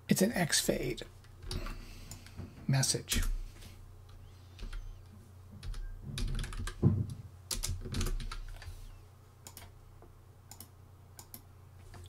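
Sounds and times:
computer keyboard typing: 4.1s - 5.0s, 5.6s - 6.8s, 7.5s - 8.7s, 9.4s - 9.7s.

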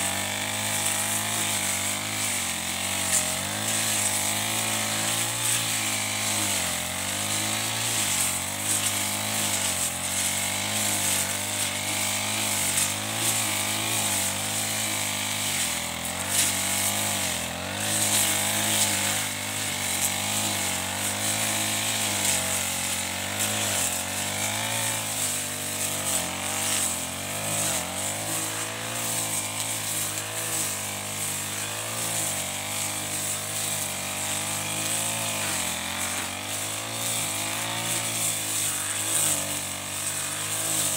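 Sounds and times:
brush cutter engine at high speed: 0.0s - 40.9s.

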